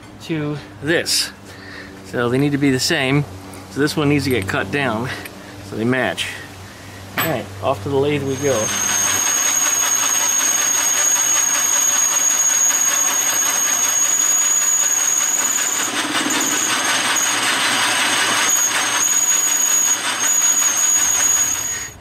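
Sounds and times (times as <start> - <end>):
lathe cutting metal: 8.0 - 22.0.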